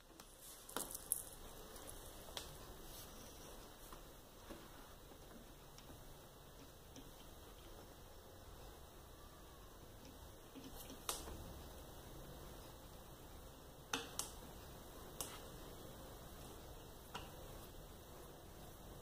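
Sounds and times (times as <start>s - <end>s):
small sharp clicks and taps: 10.0s - 11.4s, 13.9s - 14.5s.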